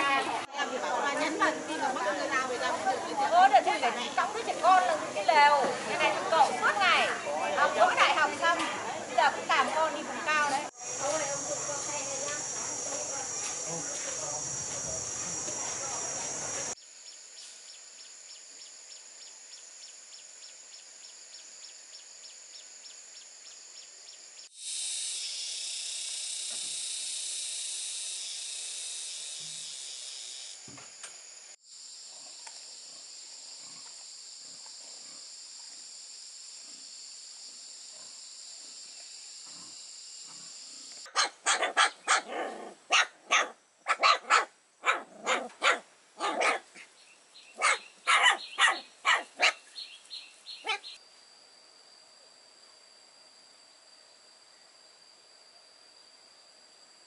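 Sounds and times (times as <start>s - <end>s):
high-pitched insect drone: 0.0s - 45.6s, 46.2s - 57.0s
dog barking: 41.1s - 46.8s, 47.6s - 49.6s, 50.6s - 50.9s.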